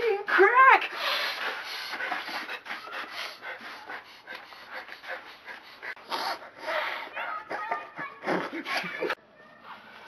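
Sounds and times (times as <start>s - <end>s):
person panting rapidly: 0.8s - 7.4s.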